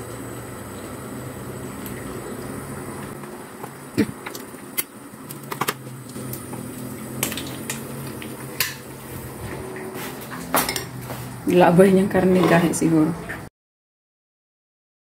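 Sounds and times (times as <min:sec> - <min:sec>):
utensils and dishes clinking: 0:09.6 - 0:11.2.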